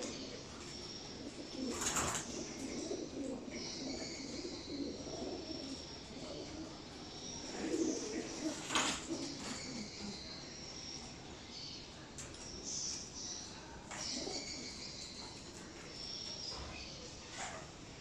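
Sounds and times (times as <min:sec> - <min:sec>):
pigeons cooing: 0:00.0 - 0:10.4, 0:13.9 - 0:15.7.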